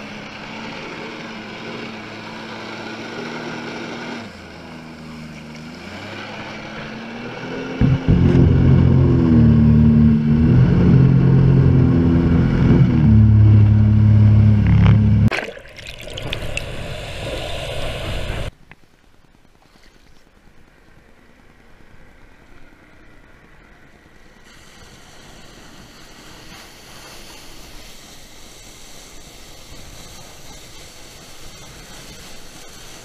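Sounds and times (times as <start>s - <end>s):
underwater rushing and bubbling: 12.8s - 18.5s
water jets hissing: 24.5s - 33.0s.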